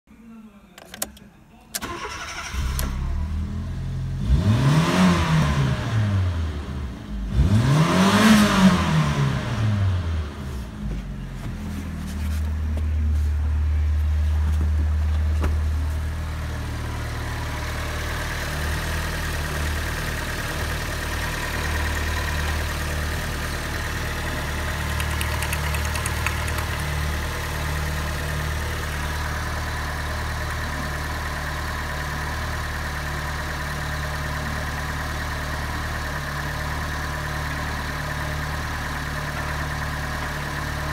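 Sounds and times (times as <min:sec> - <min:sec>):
car engine idling: 0:10.5 - 0:40.9.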